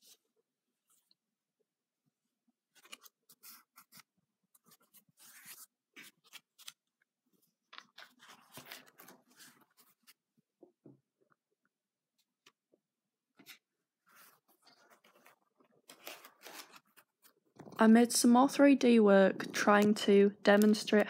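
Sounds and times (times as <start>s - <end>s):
paper rustling and crinkling: 2.7s - 10.3s, 13.4s - 17.8s.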